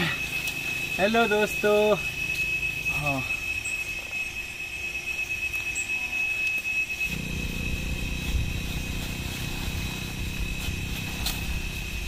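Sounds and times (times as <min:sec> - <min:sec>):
thin high whine: 0:00.0 - 0:12.0
small engine running: 0:07.0 - 0:12.0.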